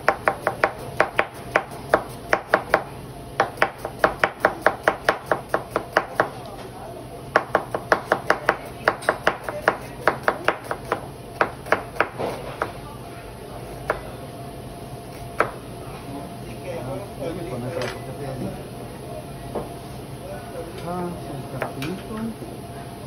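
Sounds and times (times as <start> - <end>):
knife chopping on cutting board: 0.0 - 2.8, 3.4 - 6.3.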